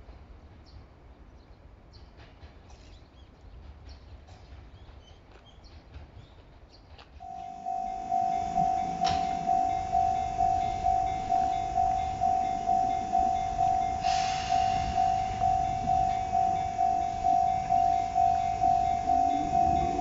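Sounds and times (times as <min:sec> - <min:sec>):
train running rumble: 0:00.0 - 0:20.0
level-crossing alarm ringing: 0:07.2 - 0:20.0
short burst of hiss: 0:14.0 - 0:15.1.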